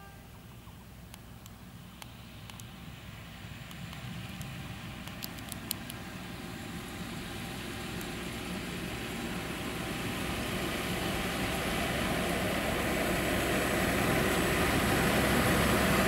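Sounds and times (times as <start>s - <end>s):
diesel locomotive rumbling: 0.0s - 16.0s
sharp clicks: 0.6s - 2.8s, 3.6s - 6.0s.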